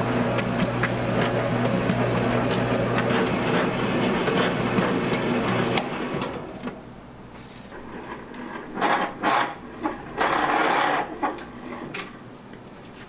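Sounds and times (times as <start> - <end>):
dough mixer motor humming: 0.0 - 6.8.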